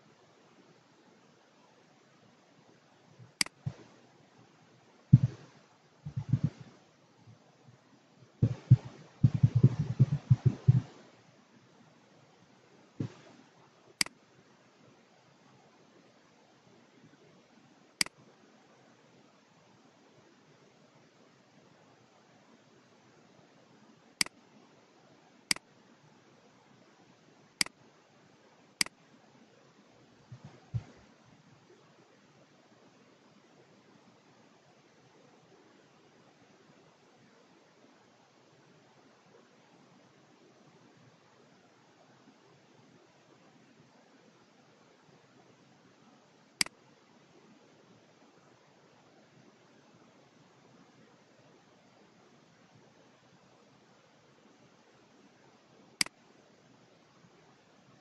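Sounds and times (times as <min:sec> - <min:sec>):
faint steady hiss: 0:00.0 - 0:58.0
mouse click: 0:03.4 - 0:03.8, 0:05.2 - 0:05.4, 0:06.1 - 0:06.6, 0:08.4 - 0:10.9, 0:27.6 - 0:27.8
keyboard typing: 0:05.2 - 0:05.4, 0:06.1 - 0:06.6, 0:08.4 - 0:11.0.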